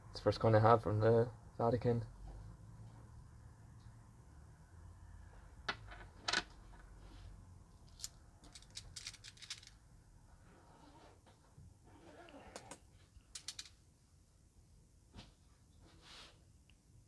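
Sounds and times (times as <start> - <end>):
coin set down on table: 5.7 - 6.5, 8.0 - 9.8, 13.4 - 13.7
coins clinking in palm: 7.9 - 9.8, 13.4 - 13.7.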